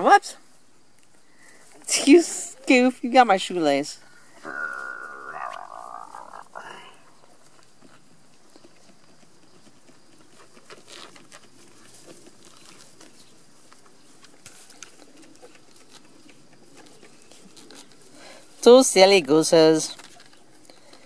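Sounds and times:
puppies scuffling on grass: 7.4s - 20.7s.

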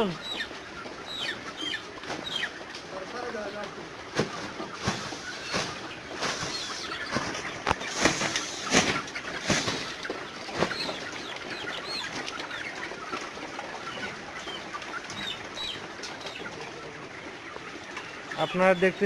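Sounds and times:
high chirping calls: 0.0s - 2.6s
chicken flock din: 0.0s - 19.0s
wings flapping: 4.1s - 11.2s.

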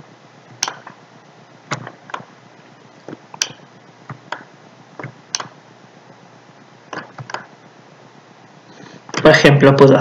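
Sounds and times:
computer mouse clicks: 3.4s - 5.6s, 6.9s - 7.5s.

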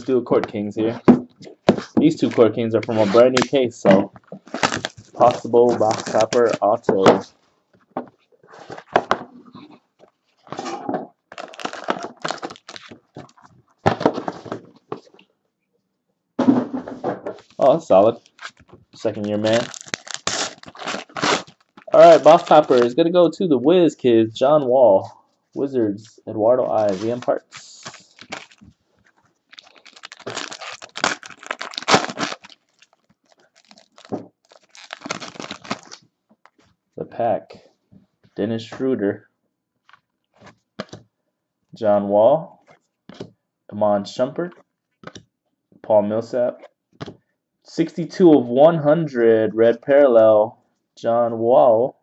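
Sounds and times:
foil wrapper crinkling: 4.4s - 6.8s, 11.3s - 13.5s, 18.2s - 23.0s, 26.7s - 36.0s.

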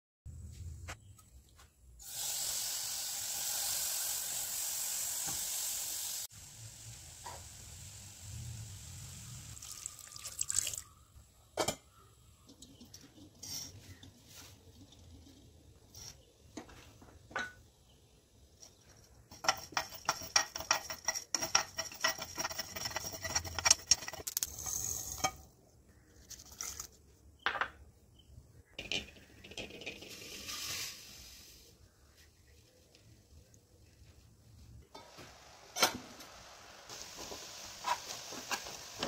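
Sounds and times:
spoon stirring seeds in pan: 18.6s - 25.4s.

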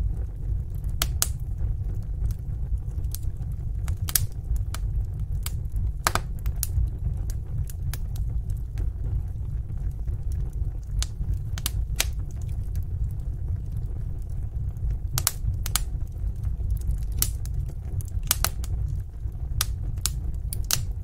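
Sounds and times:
fire crackling and popping: 0.0s - 21.0s
low rumble of flame: 0.0s - 21.0s.

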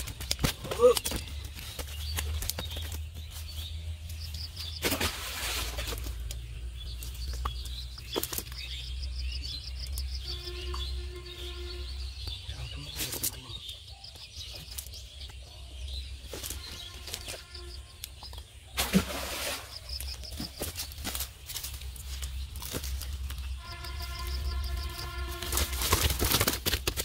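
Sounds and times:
fish flapping and slapping: 4.8s - 6.4s, 25.4s - 27.0s.

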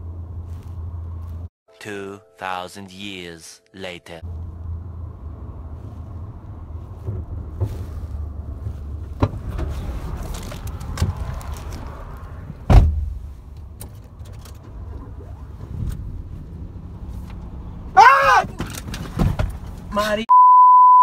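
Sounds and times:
knocks and shuffling: 0.0s - 1.5s, 4.2s - 20.0s
steady low rumble: 0.0s - 1.5s, 4.2s - 17.9s
car door slamming: 12.6s - 13.2s.

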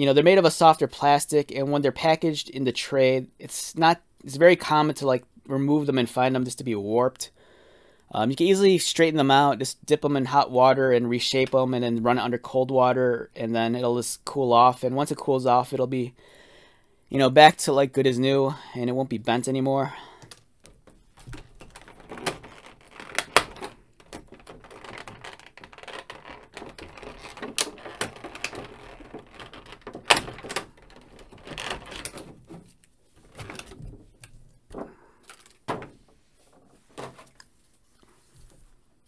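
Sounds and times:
plastic snaps: 20.2s - 35.9s
plastic blister tray crackling: 20.2s - 36.0s.

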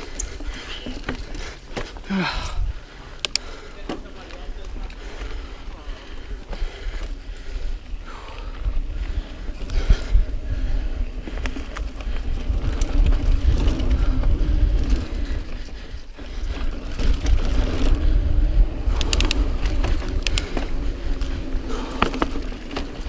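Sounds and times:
bike rattling and clicking: 0.0s - 23.0s
bike tyres rolling on dirt trail: 0.0s - 23.0s
sharp clicks: 3.2s - 3.5s, 18.9s - 20.7s
wind rumble on microphone: 6.3s - 23.0s.

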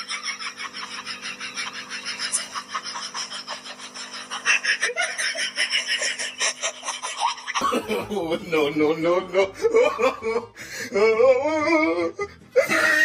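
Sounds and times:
person laughing breathlessly: 0.0s - 8.3s, 8.9s - 13.0s.

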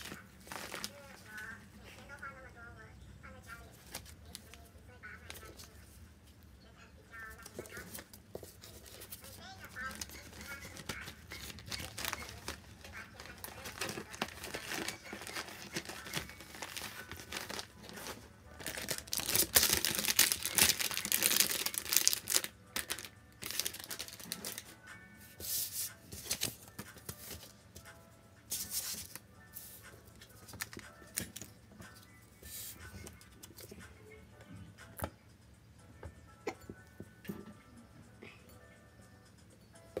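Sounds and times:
paper rustling and crinkling: 0.0s - 1.3s, 3.7s - 4.6s, 7.4s - 24.7s, 25.4s - 27.5s, 28.5s - 31.4s
soft background music: 0.0s - 40.0s.

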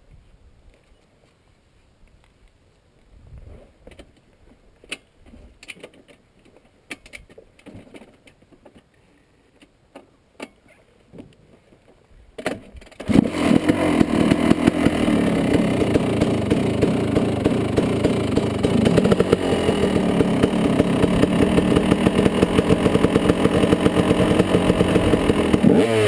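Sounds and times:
motocross engine starting and running: 12.5s - 26.0s.

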